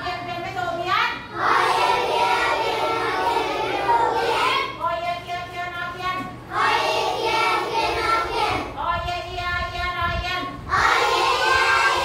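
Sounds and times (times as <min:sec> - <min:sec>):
children chanting in unison: 0:01.3 - 0:04.7, 0:06.5 - 0:08.7, 0:10.7 - 0:12.0.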